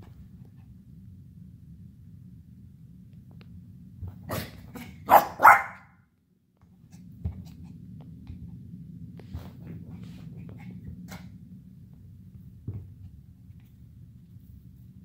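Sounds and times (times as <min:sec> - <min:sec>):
puppy barking: 0:04.3 - 0:05.9.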